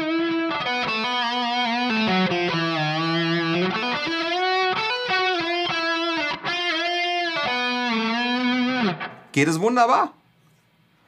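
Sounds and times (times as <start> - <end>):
electric guitar slow melody: 0.0 - 9.3.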